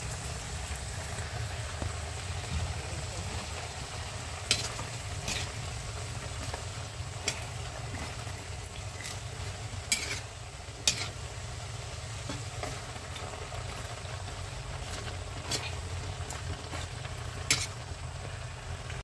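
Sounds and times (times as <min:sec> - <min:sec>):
vegetables sizzling in a wok: 0:00.0 - 0:19.0
metal ladle stirring: 0:04.1 - 0:17.9.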